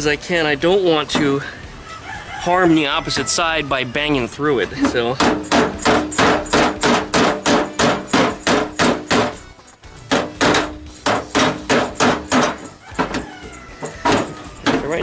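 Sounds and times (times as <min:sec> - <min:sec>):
hammer striking sheet steel: 0:04.8 - 0:09.4, 0:10.1 - 0:13.2.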